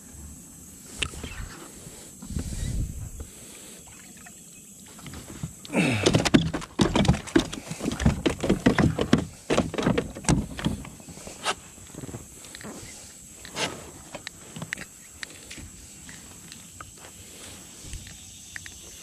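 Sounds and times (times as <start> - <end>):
fish splashing and thrashing: 5.0 - 10.8
knocks and rattles against hull: 5.9 - 11.0.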